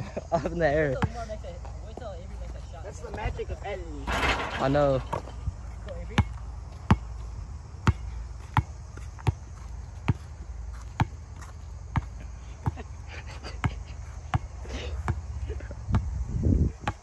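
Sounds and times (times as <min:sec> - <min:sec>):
basketball dribbling on hard court: 0:10.9 - 0:12.8.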